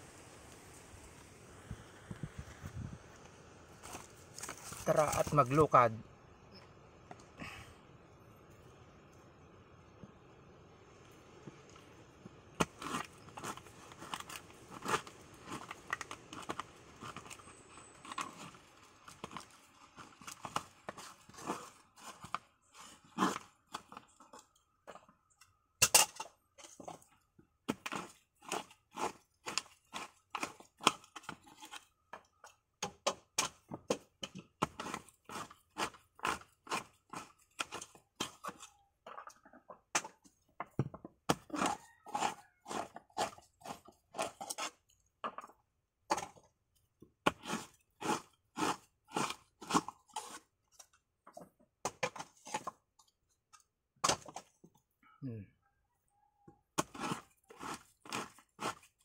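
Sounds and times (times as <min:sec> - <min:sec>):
coconut meat crunching: 0:12.6 - 0:25.0, 0:27.6 - 0:40.2, 0:41.2 - 0:44.9, 0:47.1 - 0:51.0, 0:56.7 - 0:59.0.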